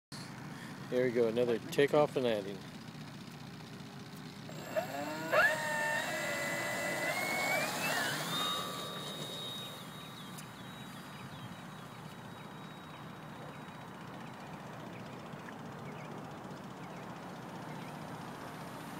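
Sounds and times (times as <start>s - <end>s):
model plane motor whine: 4.5s - 12.8s.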